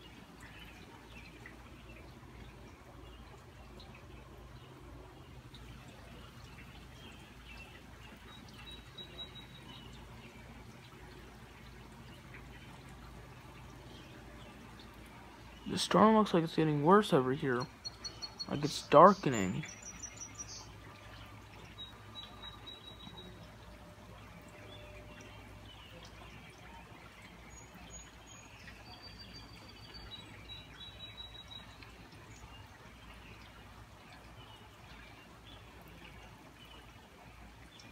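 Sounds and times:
low background noise: 0.0s - 37.9s
steady rain and dripping: 0.0s - 37.9s
faint bird chirps: 17.4s - 33.5s
faint high chirps: 17.5s - 23.9s.

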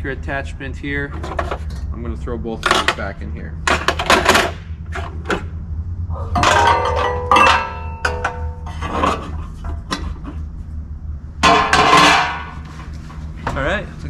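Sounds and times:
metal attachments clinking: 6.3s - 9.2s.

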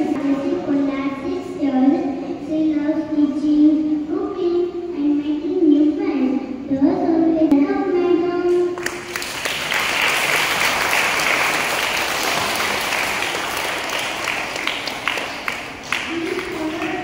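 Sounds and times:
audience applauding: 8.8s - 17.0s.

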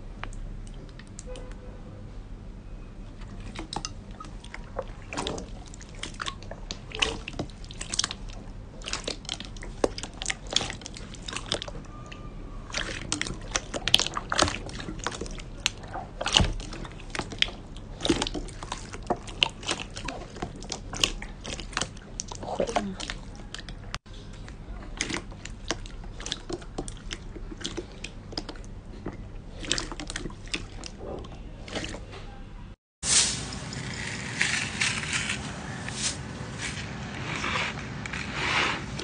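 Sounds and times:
slime squelching: 3.1s - 32.3s.

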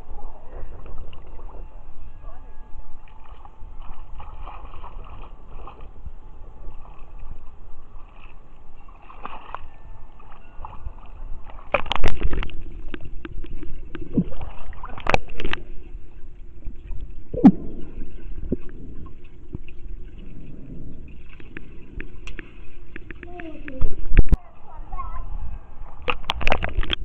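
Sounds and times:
muffled underwater sound: 0.0s - 27.0s
pool water sloshing: 0.0s - 27.0s.

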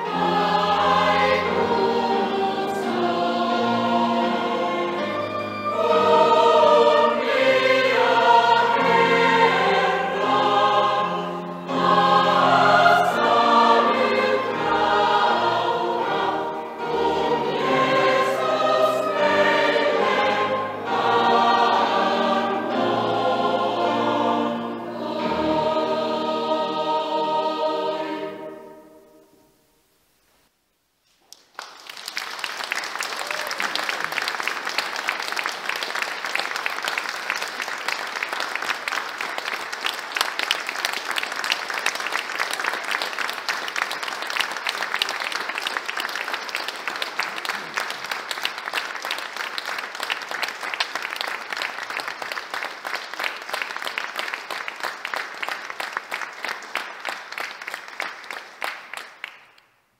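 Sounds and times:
audience applauding: 31.3s - 59.7s.

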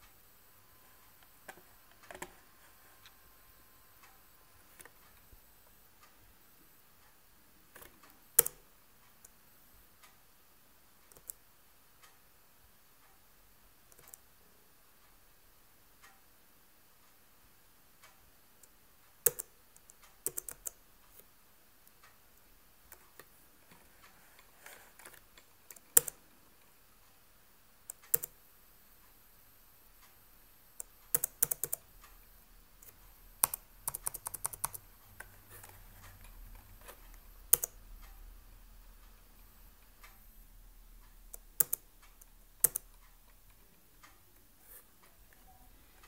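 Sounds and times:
laptop keys clicking: 7.7s - 8.6s, 11.1s - 11.4s, 13.9s - 14.2s, 19.2s - 21.2s, 25.0s - 26.2s, 27.9s - 28.4s, 30.8s - 31.8s, 32.8s - 35.8s, 36.8s - 37.8s, 41.3s - 43.4s.

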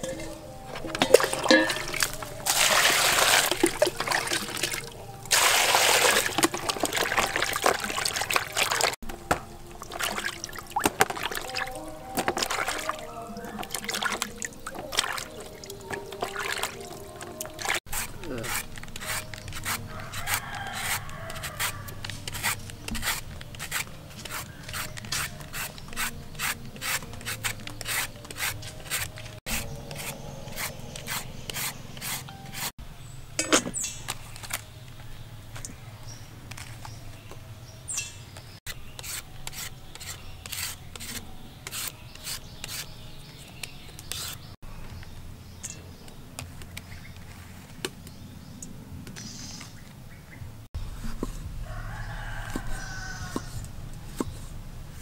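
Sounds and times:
peeler scraping papaya: 17.4s - 32.7s, 38.7s - 44.5s, 52.1s - 54.6s.

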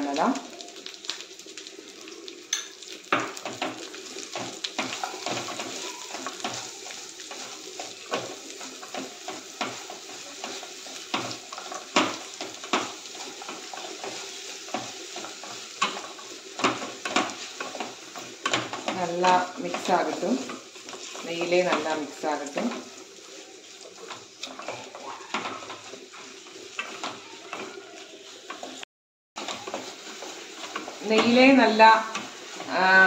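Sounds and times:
ghee sizzling: 0.0s - 33.0s
spatula scraping a pan: 2.7s - 28.8s, 29.4s - 33.0s.

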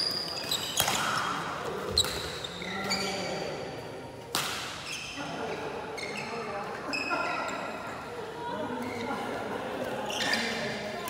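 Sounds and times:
shoes squeaking on court: 0.0s - 3.4s, 5.9s - 7.8s, 10.0s - 10.8s
racket hitting shuttlecock: 0.6s - 2.5s, 4.2s - 4.9s.

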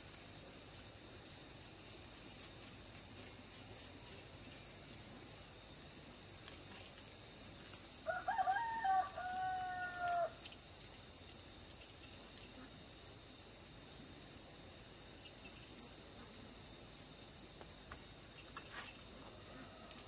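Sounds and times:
crickets droning: 0.0s - 20.0s
rooster crowing: 8.0s - 10.4s, 19.4s - 20.0s.

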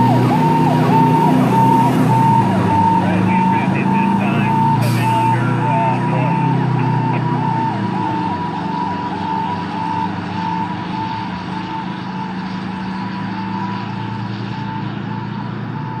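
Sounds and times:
low engine rumble: 0.0s - 11.2s
road noise: 0.0s - 16.0s
whooping siren: 0.0s - 16.0s.

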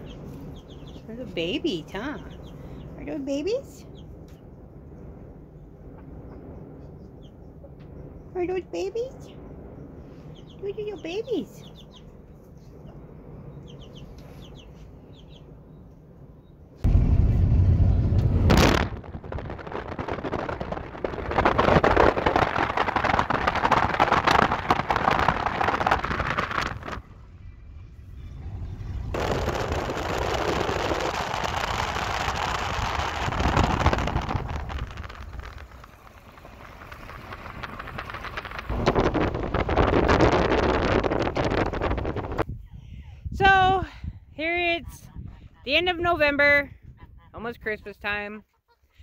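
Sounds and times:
vehicle driving on gravel road: 16.8s - 42.4s
wind on microphone: 16.8s - 47.4s.

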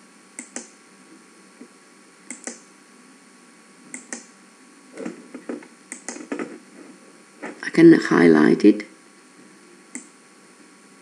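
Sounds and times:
computer mouse double clicks: 0.4s - 0.7s, 2.3s - 2.6s, 3.9s - 4.3s, 5.9s - 6.2s.

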